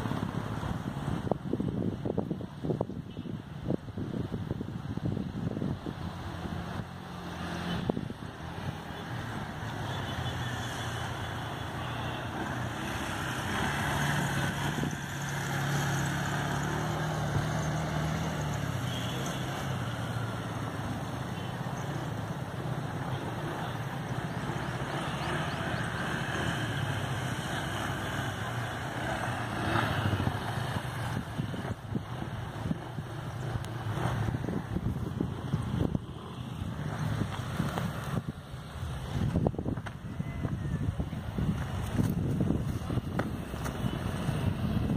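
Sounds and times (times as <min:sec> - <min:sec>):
quad bike engine revving: 0:12.3 - 0:19.5, 0:23.4 - 0:38.1.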